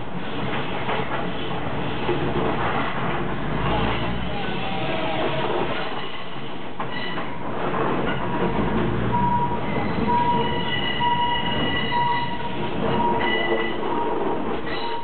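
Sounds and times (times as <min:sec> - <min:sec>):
diesel train running on track: 0:00.0 - 0:15.0
repeating high warning tone: 0:09.2 - 0:13.6.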